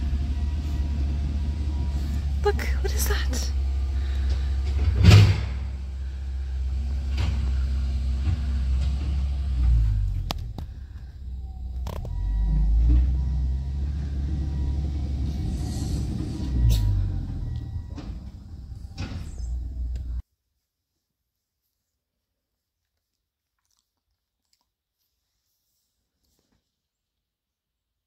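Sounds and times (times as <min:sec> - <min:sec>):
diesel engine rumbling: 0:00.0 - 0:20.2.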